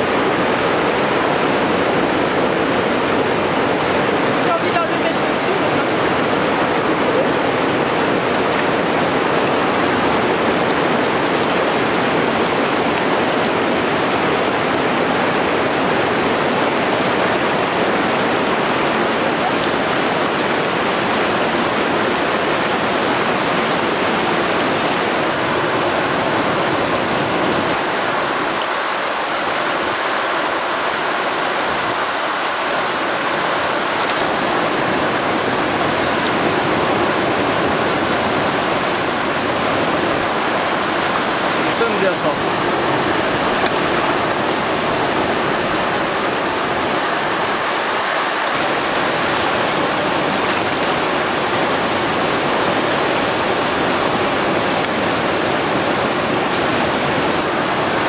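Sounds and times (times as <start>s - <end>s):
river rushing over rapids: 0.0s - 58.0s.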